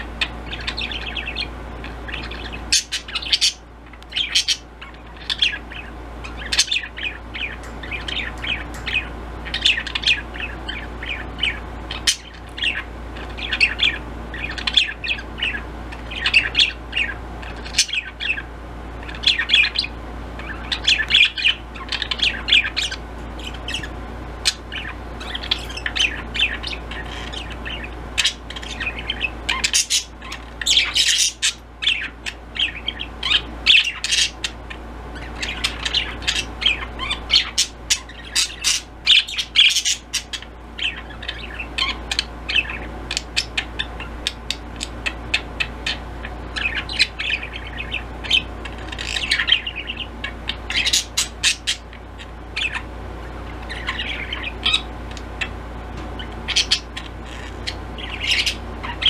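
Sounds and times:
budgerigars chirping: 0.0 - 59.0.

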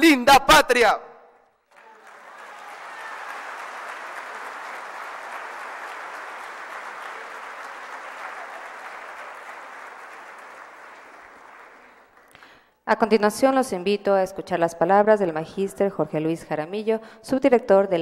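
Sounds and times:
audience applauding: 1.6 - 12.6.

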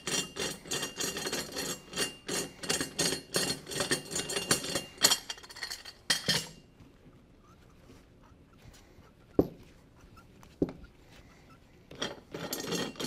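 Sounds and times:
metal clamp bars clinking: 0.0 - 6.6.

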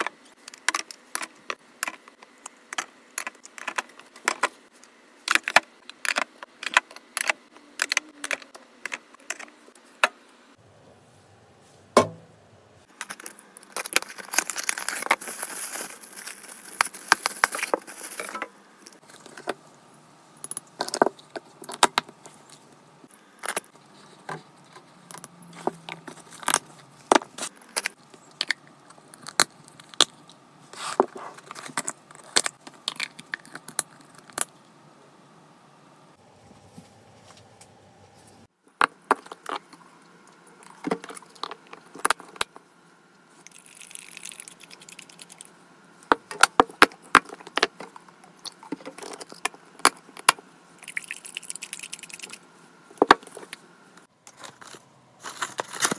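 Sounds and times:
small hard items clinking: 12.9 - 19.5.

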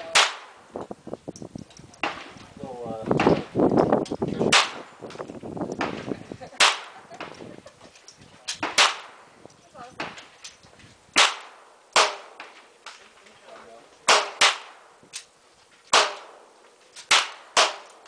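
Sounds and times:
pistol shots: 0.1 - 0.6, 4.5 - 4.9, 5.8 - 7.3, 8.6 - 9.2, 11.2 - 12.6, 14.1 - 14.9, 15.9 - 16.4, 17.0 - 18.0
faint gunshot cracks: 5.8 - 7.3, 8.6 - 9.2, 11.2 - 12.6, 14.1 - 14.8, 15.9 - 16.4, 17.1 - 18.0.

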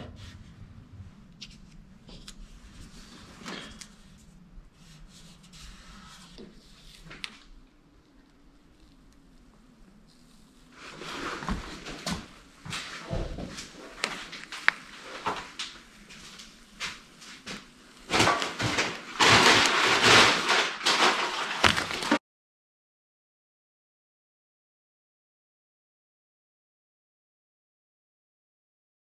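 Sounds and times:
backing paper crinkling: 1.4 - 22.2.

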